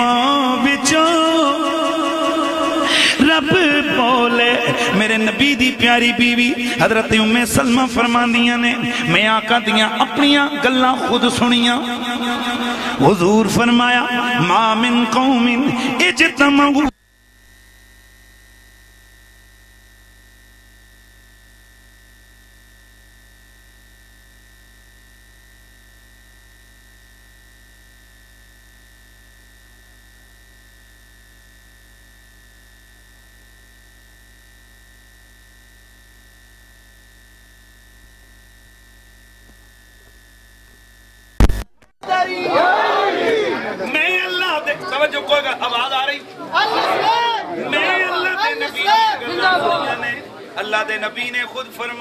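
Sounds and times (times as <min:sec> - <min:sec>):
thin high whine: 0:00.0 - 0:42.8
electrical mains hum: 0:00.0 - 0:52.0
loud pop: 0:41.4 - 0:41.9.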